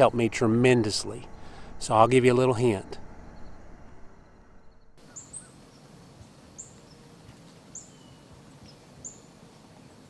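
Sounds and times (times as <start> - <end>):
faint outdoor hiss: 0.0 - 10.0
small bird chirping: 4.6 - 5.9, 7.7 - 9.3.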